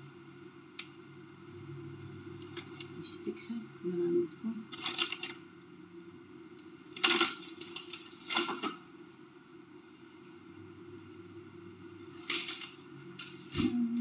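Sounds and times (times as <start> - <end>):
steady low hum: 0.0 - 14.0
kitchen rustling and clatter: 4.7 - 5.4, 6.9 - 8.8, 12.1 - 13.8.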